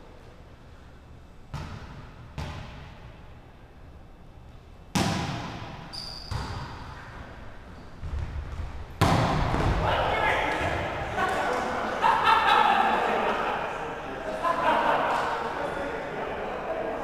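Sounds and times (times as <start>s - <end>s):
sharp slap of volleyball serve: 4.9s - 6.8s, 9.0s - 9.8s
volleyball thuds: 4.9s - 6.8s, 8.0s - 11.0s
shoe squeak: 5.9s - 7.1s.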